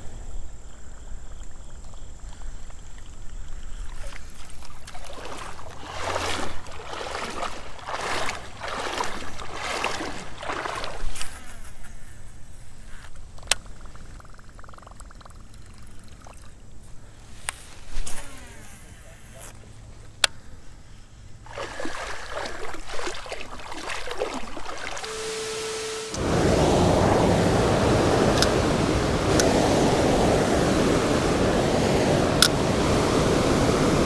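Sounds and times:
sloshing steps in water: 3.6s - 11.6s, 21.5s - 25.4s.

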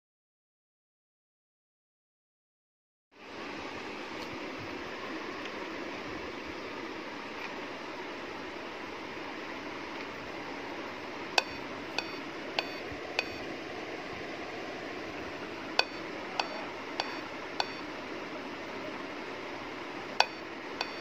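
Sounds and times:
short high beeps: 11.4s - 13.4s, 15.8s - 17.8s, 20.2s - 21.0s.

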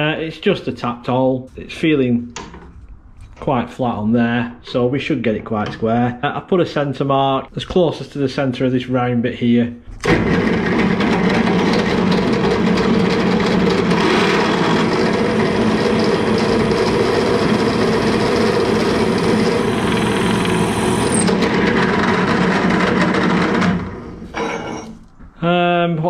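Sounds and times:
pillar drill drilling into metal: 10.0s - 24.5s.

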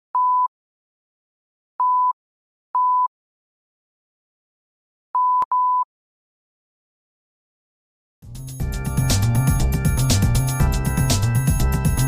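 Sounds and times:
short electronic beeps: 5.2s - 5.9s.

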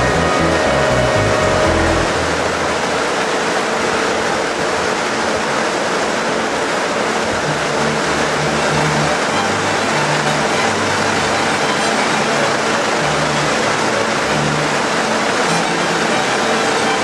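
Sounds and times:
low hum: 0.0s - 3.5s
conveyor machinery running: 0.0s - 17.0s.

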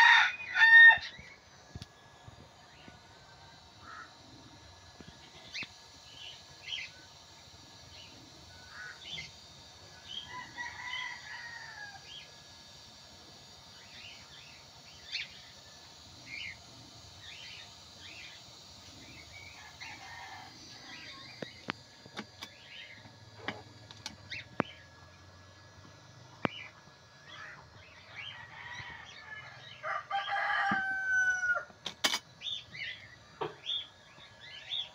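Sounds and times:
rooster crowing: 0.0s - 1.2s, 10.0s - 12.2s, 19.6s - 21.1s, 28.1s - 31.7s.

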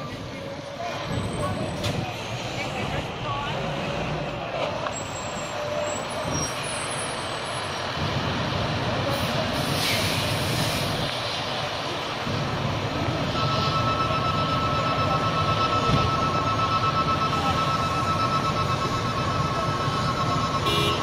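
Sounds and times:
electronic alarm tone: 13.4s - 20.9s.

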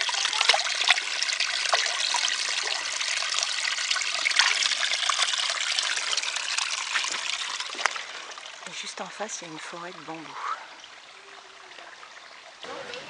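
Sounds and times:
hands splashing in water: 0.0s - 3.0s
stream trickling over rocks: 0.0s - 13.0s.

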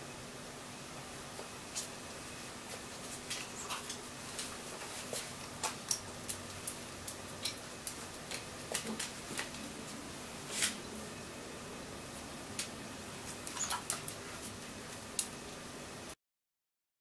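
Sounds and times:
dog claws clicking on tiles: 5.5s - 9.6s.

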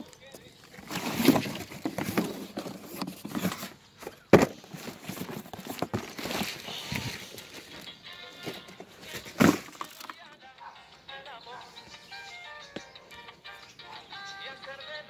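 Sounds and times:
plastic wrap rustling: 0.7s - 10.0s
tubes knocking on roof tiles: 8.6s - 10.2s.

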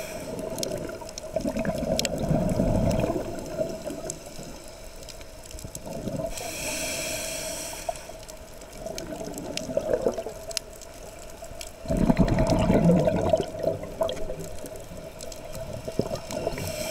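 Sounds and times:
hissing regulator inhale: 0.0s - 0.7s, 6.2s - 8.4s, 16.3s - 16.9s
exhaled bubbles rushing: 0.4s - 4.2s, 8.8s - 10.5s, 11.8s - 16.9s.

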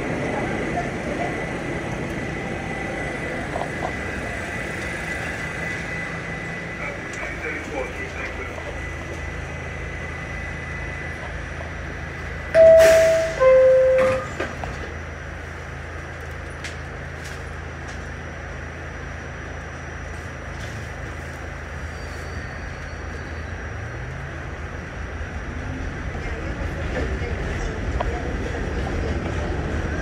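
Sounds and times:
subway car low rumble: 0.0s - 30.0s
subway doors clicking shut: 12.5s - 15.0s
two-tone door chime: 12.6s - 14.4s.

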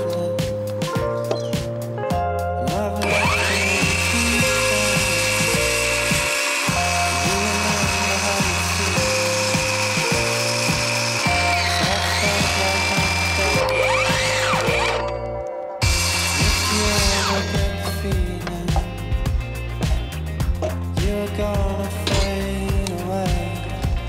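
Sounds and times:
background music: 0.0s - 24.0s
circular saw cutting wood: 3.0s - 18.5s.

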